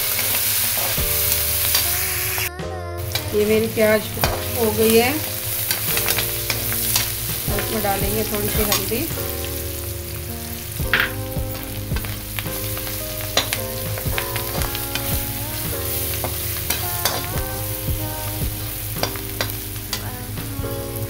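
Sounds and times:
vegetables sizzling in oil: 0.0s - 2.5s, 3.1s - 20.4s.

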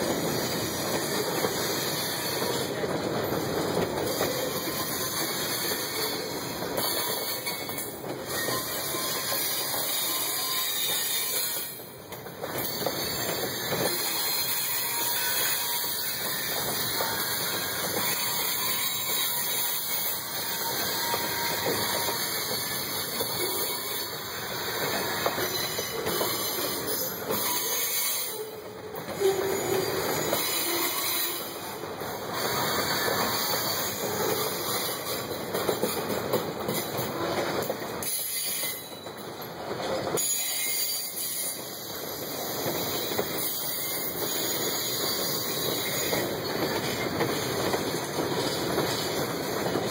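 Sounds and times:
sharp clanks of train cars: 0.0s - 49.9s
train wheels clattering over rails: 0.0s - 49.9s.

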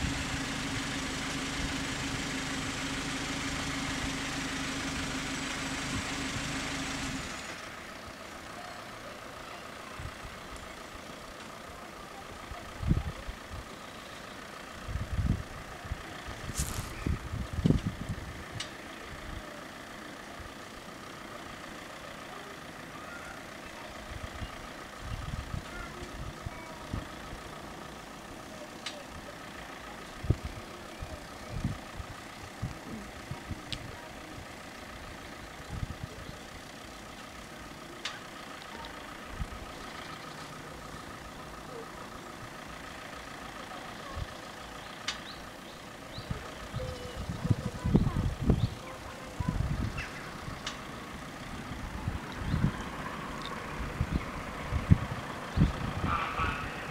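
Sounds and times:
cars idling faintly: 0.0s - 56.9s
wind buffeting microphone: 16.4s - 18.4s, 46.7s - 50.1s, 53.9s - 56.9s.

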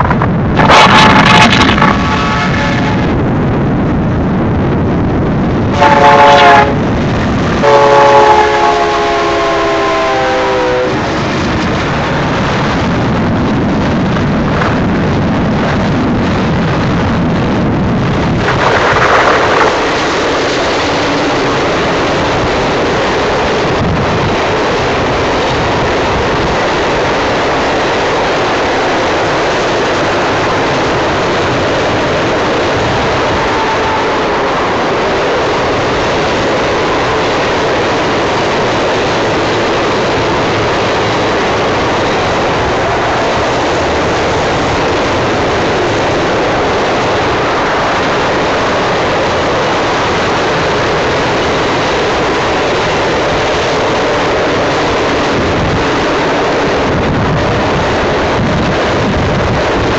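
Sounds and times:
rail cars rolling with wheel clatter: 0.0s - 59.9s
locomotive air horn: 1.9s - 3.2s, 5.7s - 6.9s, 7.6s - 11.0s, 33.1s - 34.6s.

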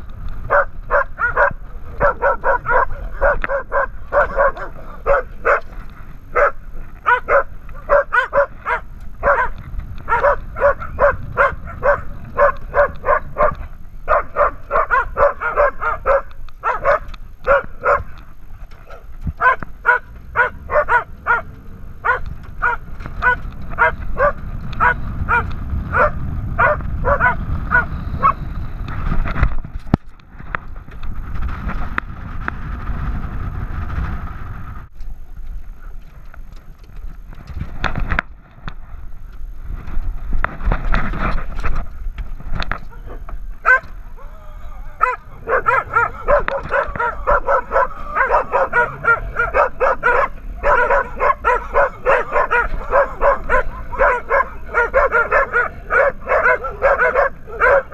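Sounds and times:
wind rumble on microphone: 0.0s - 57.9s
dog barking: 0.5s - 5.7s, 6.3s - 18.2s, 18.8s - 28.4s, 42.9s - 43.9s, 45.0s - 57.9s.

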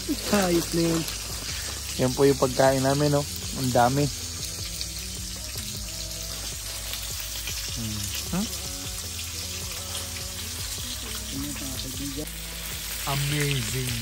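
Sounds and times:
steak sizzling in a pan: 0.0s - 14.0s.

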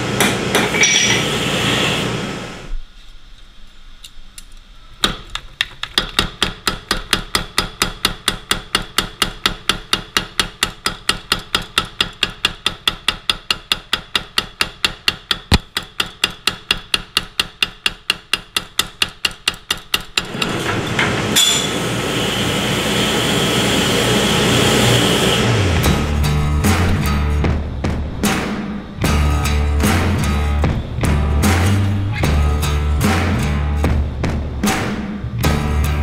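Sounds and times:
power hammer striking metal: 0.0s - 1.3s, 6.1s - 27.3s.

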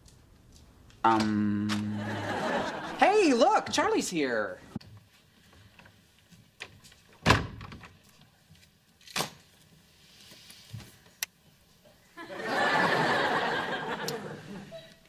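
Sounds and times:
studio audience laughing: 1.8s - 3.4s, 12.2s - 14.9s.

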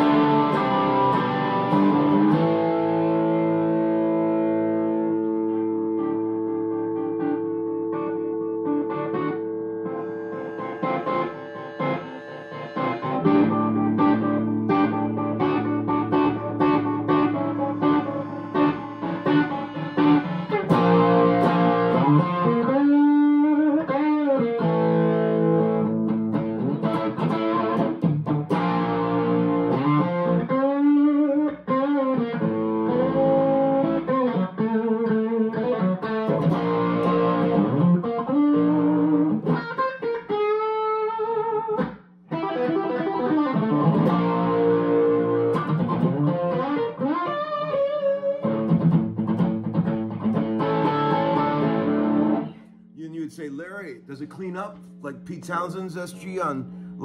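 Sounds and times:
electric guitar chords and lines: 0.0s - 57.0s.

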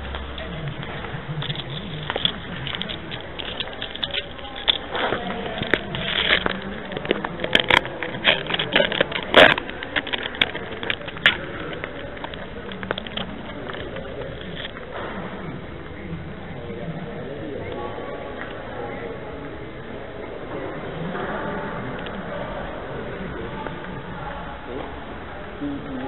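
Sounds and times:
sharp clicks and knocks: 0.0s - 15.3s
crackly background noise: 0.0s - 26.0s
faint voices: 0.0s - 26.0s.

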